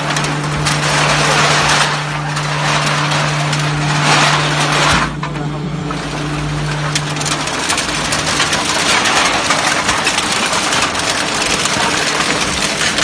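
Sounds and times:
machine motor running: 0.0 - 13.0.

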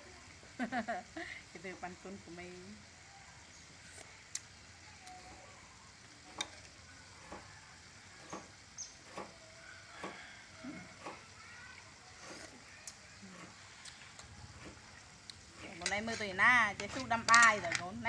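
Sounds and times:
faint steady hiss: 0.0 - 18.0.

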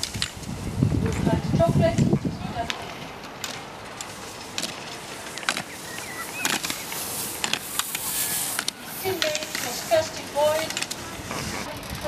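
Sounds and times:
skis scraping on brush matting: 3.4 - 11.8
skis sliding hiss: 4.0 - 11.8.

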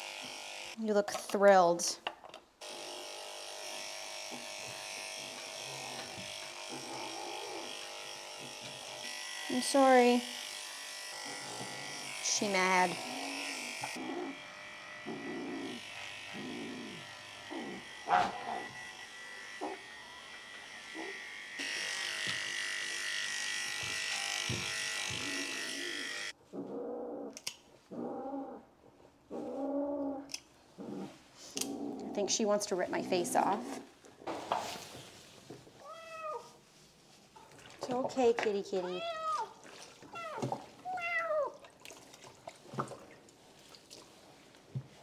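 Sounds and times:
electric pet clippers running: 0.0 - 0.8, 2.6 - 26.4
cat yowling: 35.8 - 36.5, 39.0 - 41.6.

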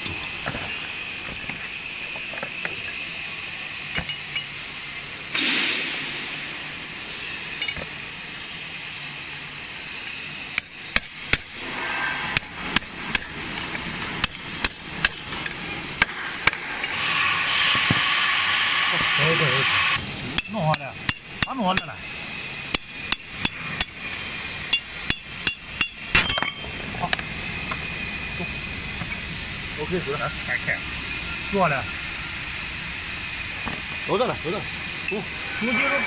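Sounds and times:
metal scrape: 11.5 - 14.1
hammer striking steel bar: 20.4 - 21.9, 24.7 - 26.7.

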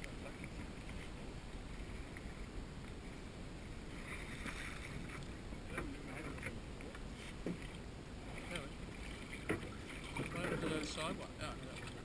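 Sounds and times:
low river rush: 0.0 - 12.0
water splashing around raft: 3.8 - 12.0.

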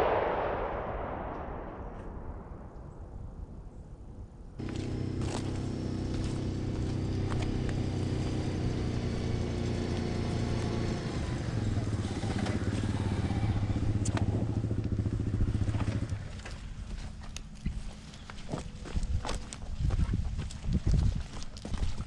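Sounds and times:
vehicle engine running: 4.6 - 19.0.

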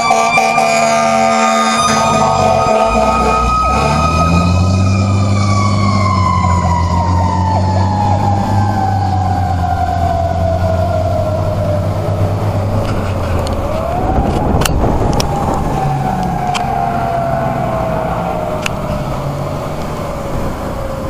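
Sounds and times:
fire engine siren wailing: 0.0 - 21.0
truck engine drone: 0.0 - 21.0.

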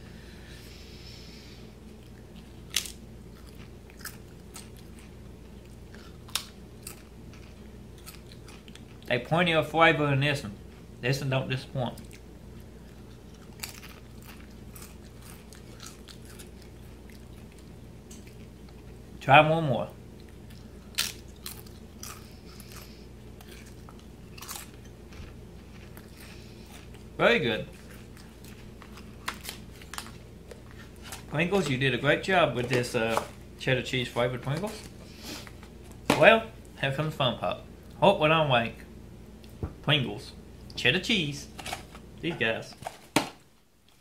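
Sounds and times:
chewing crunches: 1.9 - 9.1, 11.9 - 19.0, 20.1 - 31.8
crisp crunching snaps: 1.9 - 9.1, 11.9 - 18.9, 20.2 - 27.1, 27.7 - 31.8.

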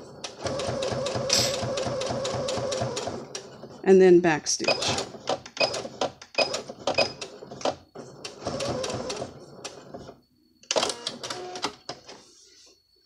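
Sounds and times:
electric sewing machine stitching: 0.0 - 3.8, 4.6 - 10.1.

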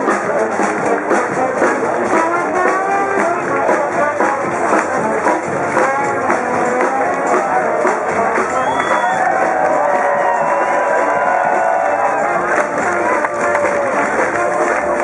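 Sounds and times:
jazz band playing live: 0.0 - 15.0
trombone: 0.0 - 15.0.

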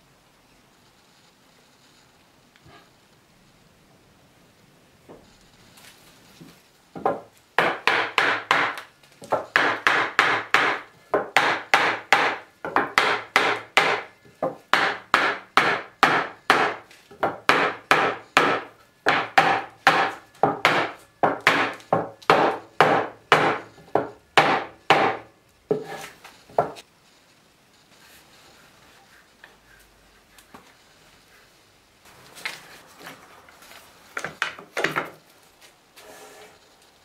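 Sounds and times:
hammer tapping on wood: 7.0 - 25.9.

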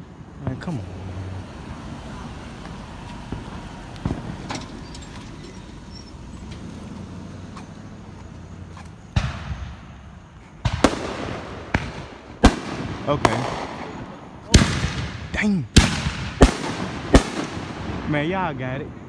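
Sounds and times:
fireworks bangs with echo: 3.3 - 5.0, 9.1 - 19.0.

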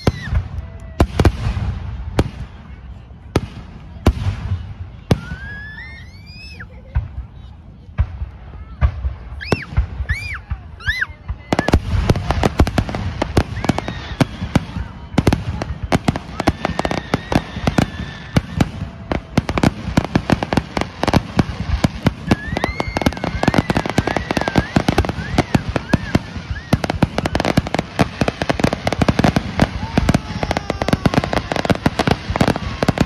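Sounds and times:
high wavering firework whistles: 0.0 - 0.5, 9.3 - 12.6, 13.2 - 18.9, 22.0 - 33.0
fireworks bangs and crackles: 0.0 - 33.0.

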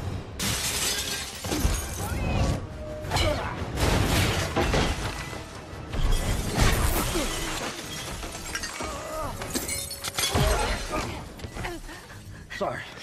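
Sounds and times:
glass breaking: 0.4 - 2.2, 6.0 - 11.0
film score music: 1.3 - 13.0.

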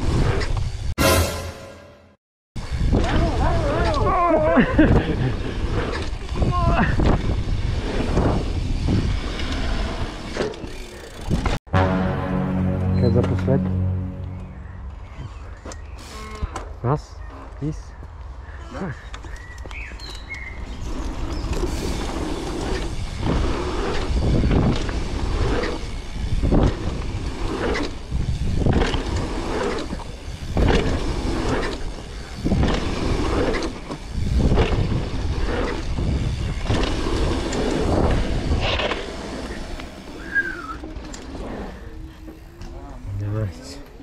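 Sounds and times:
wind buffeting microphone: 2.6 - 9.4, 22.9 - 31.2, 34.0 - 38.9.

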